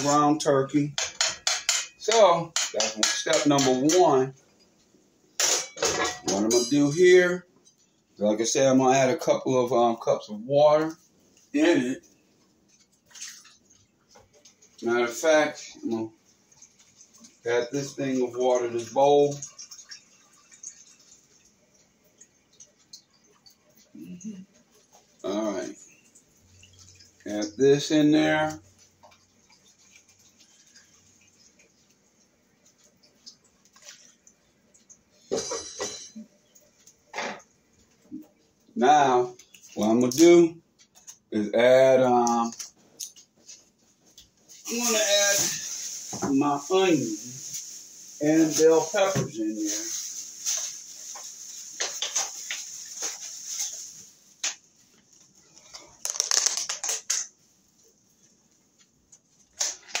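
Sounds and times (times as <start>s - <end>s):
clicks and light crackle: 36.4s - 38.7s, 42.2s - 44.5s, 50.6s - 57.4s, 58.5s - 60.0s
meat simmering in a skillet: 41.2s - 55.8s.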